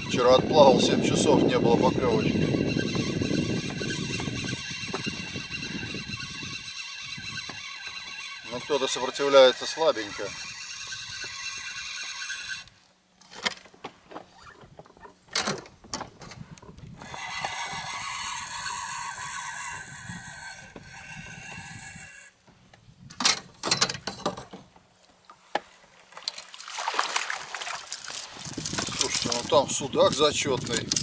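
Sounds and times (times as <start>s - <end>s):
fishing reel whirring: 0.0s - 12.7s, 17.0s - 22.3s
rustling: 25.0s - 31.0s.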